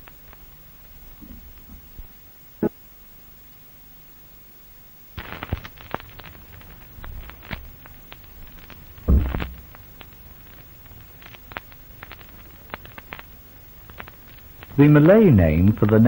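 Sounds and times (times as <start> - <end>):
loud crack: 5.2 - 16.0
sharp clicks and crackles: 5.2 - 16.0
low thud: 8.9 - 11.2.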